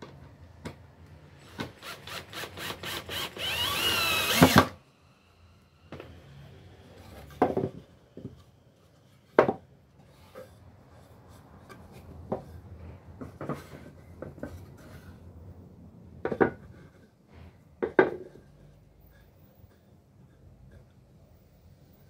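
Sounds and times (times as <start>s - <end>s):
cordless drill driving a screw: 1.4s - 4.8s.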